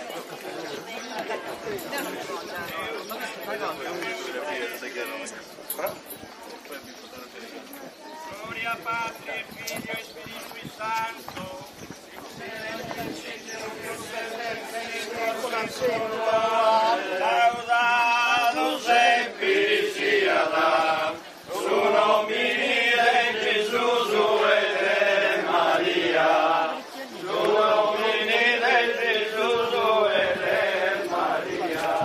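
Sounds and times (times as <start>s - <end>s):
group singing slow chant: 12.4s - 32.0s.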